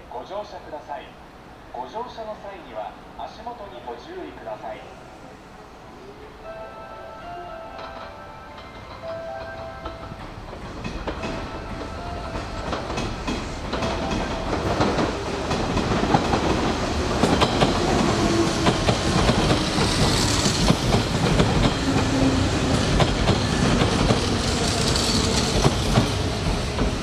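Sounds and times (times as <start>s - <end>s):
electric train running: 7.7s - 27.0s.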